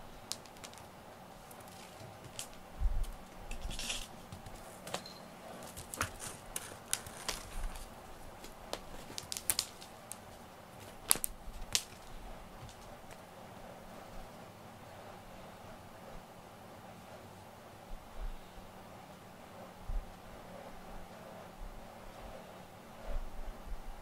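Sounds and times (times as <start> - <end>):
wand toy clicks and rustles: 0.2 - 13.2.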